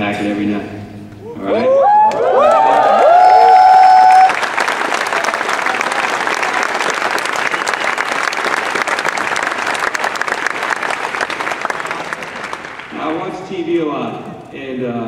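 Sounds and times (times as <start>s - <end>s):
audience applauding: 1.9s - 13.6s.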